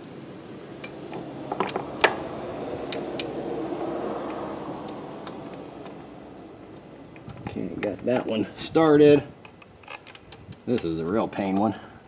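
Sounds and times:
rushing noise: 0.9s - 7.0s
small metal clicks and taps: 9.4s - 10.9s.

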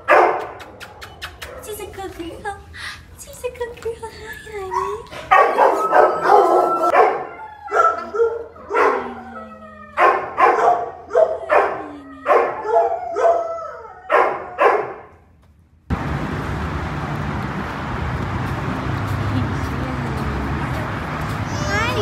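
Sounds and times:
dogs barking: 0.0s - 1.8s, 4.7s - 9.1s, 10.0s - 13.4s, 14.1s - 15.1s
dog whining and howling: 4.4s - 14.6s.

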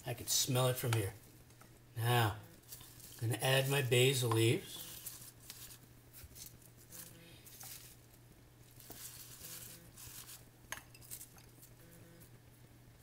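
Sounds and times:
low steady hum: 0.0s - 13.0s
leaves rustling: 2.1s - 10.5s.

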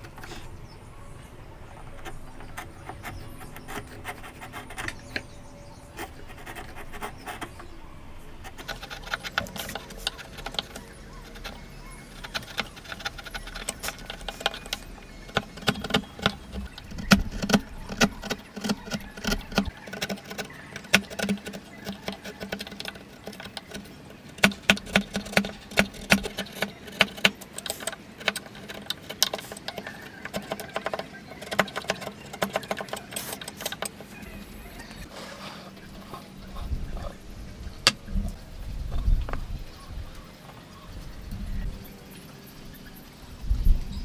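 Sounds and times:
chisel cutting wood: 8.5s - 34.2s.

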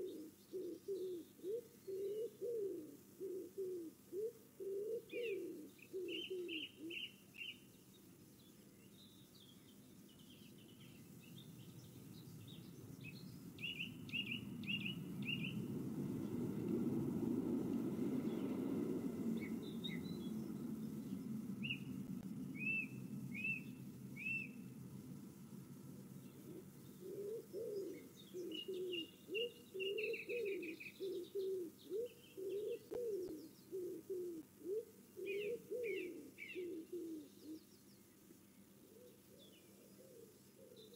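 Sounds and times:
pigeon cooing: 0.0s - 7.5s, 26.2s - 37.6s, 38.9s - 40.9s
small birds chirping: 0.0s - 16.9s, 17.6s - 40.9s
low rushing noise: 11.1s - 27.0s.

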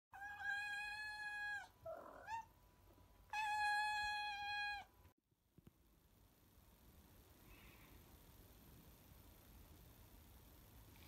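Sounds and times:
cat meowing: 0.2s - 2.5s, 3.3s - 4.9s.

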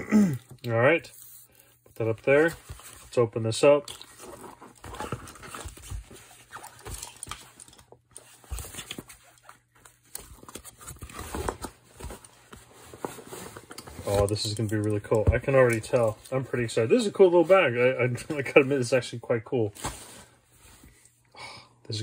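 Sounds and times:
cloth rustling: 4.1s - 19.0s.

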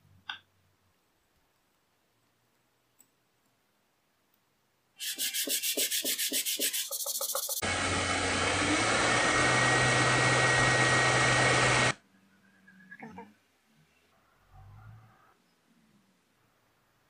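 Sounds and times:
wood rubbed on sandpaper: 5.0s - 7.6s
cordless drill running: 7.6s - 12.0s.

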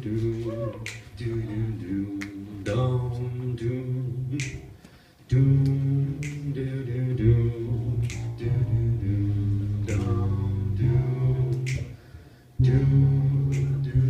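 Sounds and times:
man humming low notes: 0.0s - 12.0s, 12.6s - 14.0s
finger snaps: 0.6s - 1.1s, 4.4s - 5.0s, 5.6s - 6.6s, 8.0s - 8.5s, 9.8s - 10.2s, 11.5s - 12.0s, 13.4s - 14.0s.

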